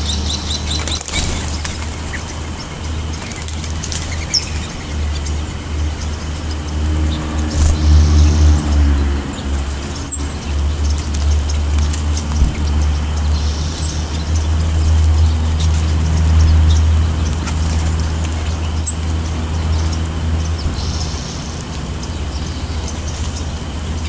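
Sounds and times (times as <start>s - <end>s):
bird chirps: 0.0s - 24.0s
vehicle engine rumble: 0.0s - 24.0s.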